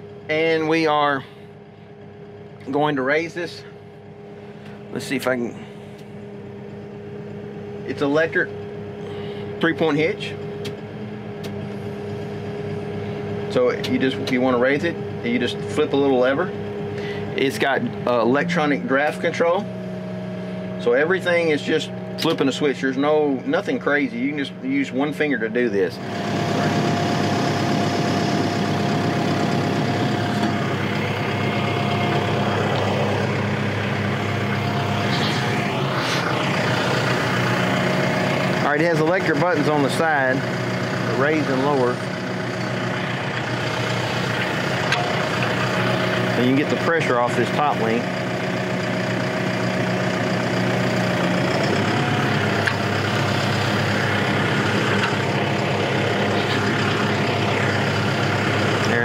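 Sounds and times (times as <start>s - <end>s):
tractor diesel engine running: 0.0s - 59.0s
thin steady whine: 2.7s - 48.0s.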